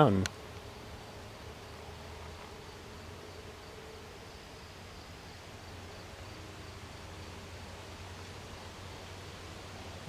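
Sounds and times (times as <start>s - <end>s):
constant low hum: 0.0s - 10.0s
even hiss: 0.0s - 10.0s.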